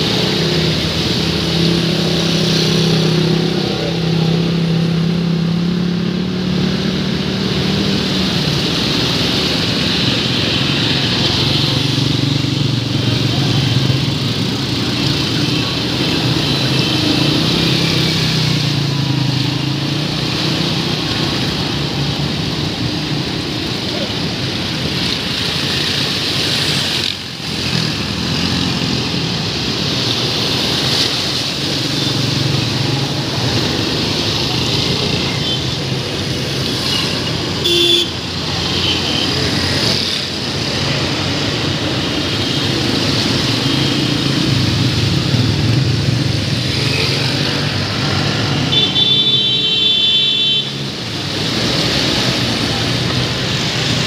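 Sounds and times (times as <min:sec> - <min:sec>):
vehicle engines running: 0:00.0 - 0:49.1, 0:50.7 - 0:54.0
tyres splashing through water: 0:00.0 - 0:54.0
horn tooting: 0:36.9 - 0:39.3, 0:48.6 - 0:50.8.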